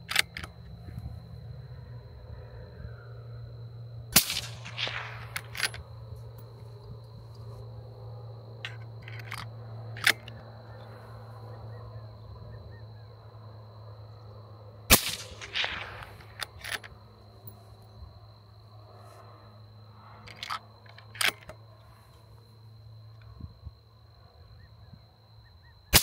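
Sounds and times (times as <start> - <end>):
rifle bolt clicks: 0.1 - 0.5, 8.7 - 10.4, 20.3 - 21.6
suppressed rifle shots with echoes: 4.1 - 6.1, 14.9 - 16.9.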